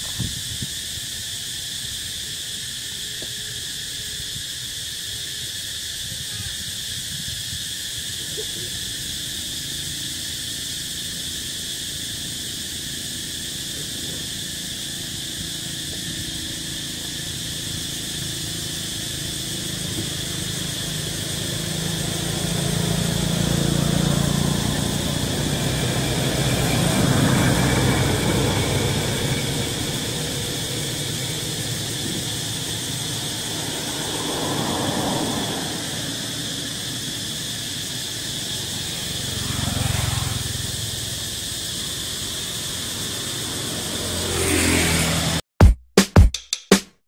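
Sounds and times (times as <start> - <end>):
forest insects chorus: 0.0 - 45.4
low engine hum: 8.8 - 45.4.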